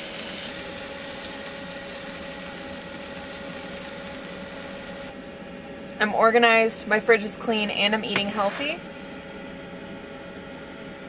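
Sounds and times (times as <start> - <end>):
chicken sizzling in a pan: 0.0 - 5.1
steady mechanical hum: 0.0 - 11.0.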